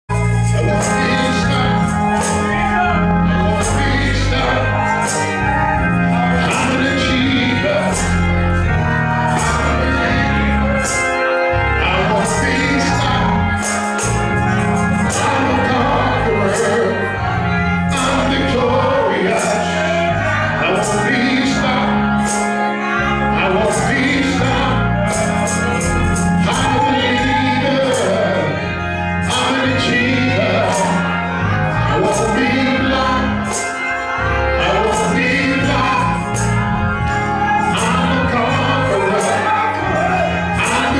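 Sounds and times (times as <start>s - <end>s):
instrumental gospel backing: 0.0s - 40.9s
man singing into a microphone: 0.6s - 8.2s, 11.8s - 13.5s, 15.1s - 22.2s, 22.8s - 33.4s, 34.5s - 36.5s, 37.4s - 40.9s.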